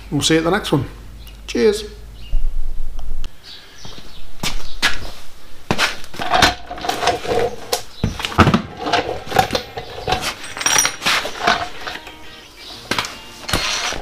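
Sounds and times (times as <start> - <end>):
knocks and clatter of tools: 6.2 - 12.2.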